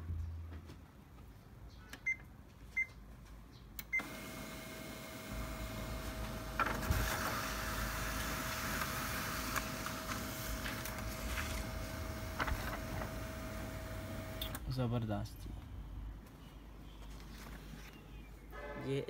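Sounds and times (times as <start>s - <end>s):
laser printer whirring: 4.0s - 14.6s.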